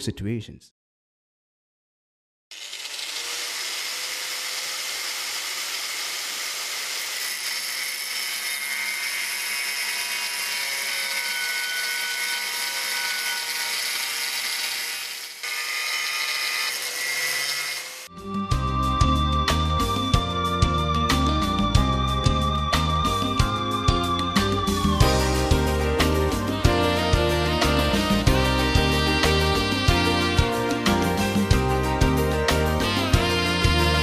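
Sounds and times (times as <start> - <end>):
angle grinder cutting glass: 2.5 - 18.1
music: 18.1 - 34.0.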